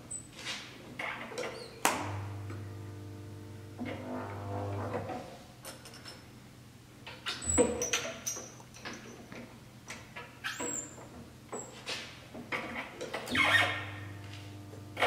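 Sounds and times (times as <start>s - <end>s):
short high squeaks: 13.3s - 14.0s.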